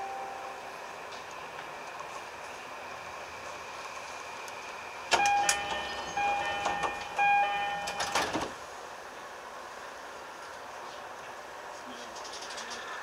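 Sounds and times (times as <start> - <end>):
electric train running: 0.0 - 8.6.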